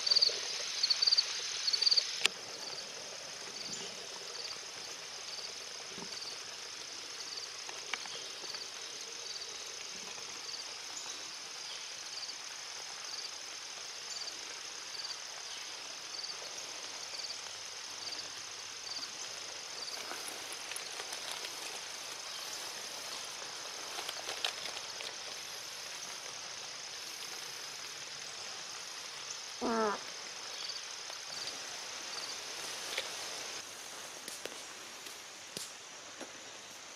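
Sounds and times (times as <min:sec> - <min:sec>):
insects chirping: 0:00.0 - 0:36.9
footsteps rustling through grass: 0:19.4 - 0:26.4, 0:31.4 - 0:35.5.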